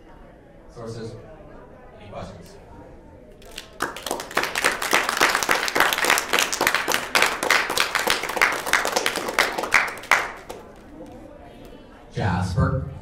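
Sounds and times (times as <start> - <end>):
audience applauding: 3.4 - 11.2.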